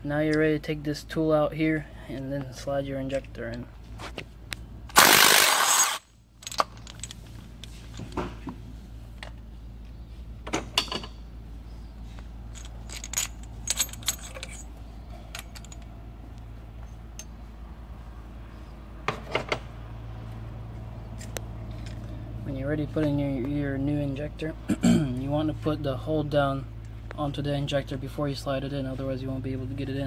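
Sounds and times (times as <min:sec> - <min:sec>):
steady low hum: 0:00.0 - 0:30.0
loud burst: 0:05.0 - 0:06.0
metal tool clinking: 0:12.5 - 0:15.9.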